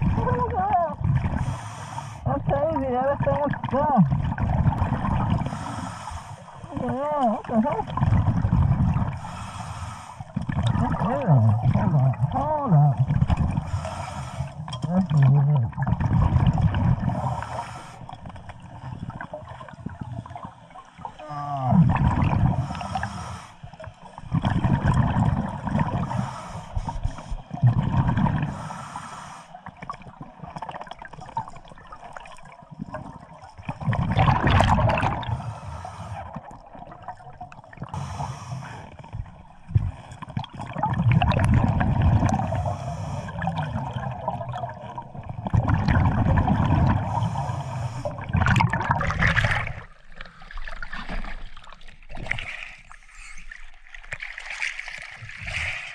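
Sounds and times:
gurgling exhaled bubbles: 0:00.0 - 0:09.6, 0:10.2 - 0:28.8, 0:29.6 - 0:55.9
diver breathing through regulator: 0:01.2 - 0:02.3, 0:05.2 - 0:06.7, 0:09.0 - 0:10.6, 0:13.5 - 0:14.7, 0:17.0 - 0:18.3, 0:22.3 - 0:23.8, 0:25.8 - 0:27.6, 0:28.4 - 0:29.8, 0:34.9 - 0:36.6, 0:37.8 - 0:39.2, 0:42.2 - 0:43.8, 0:46.8 - 0:48.4.

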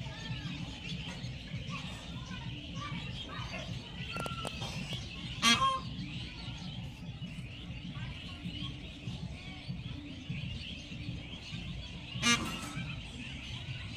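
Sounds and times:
peahen harsh calls: 0:00.4 - 0:07.0, 0:10.8 - 0:13.7.

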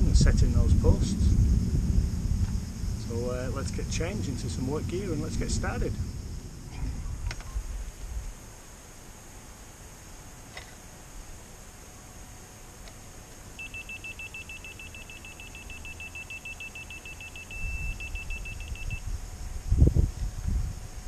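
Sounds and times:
low thumps: 0:00.0 - 0:08.3
rapid high beeps: 0:13.6 - 0:19.0.

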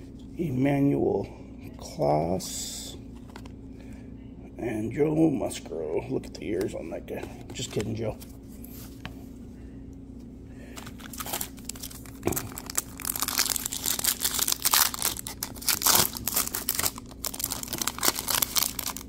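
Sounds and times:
foil wrapper tearing and crinkling: 0:11.0 - 0:19.0.

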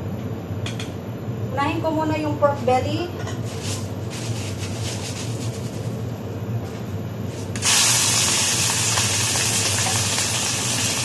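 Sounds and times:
meat sizzling in a hot pan: 0:07.6 - 0:11.0.

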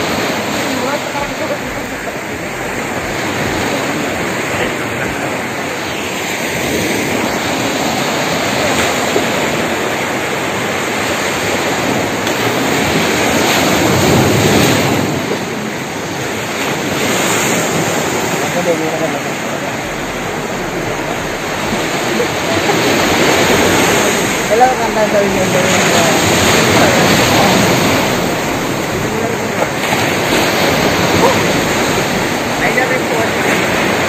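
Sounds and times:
ocean surf breaking: 0:00.0 - 0:34.0.

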